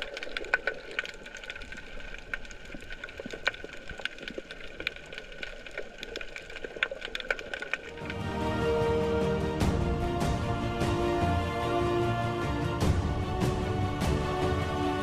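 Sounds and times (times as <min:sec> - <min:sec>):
underwater clicking and crackling: 0:00.0 - 0:08.3.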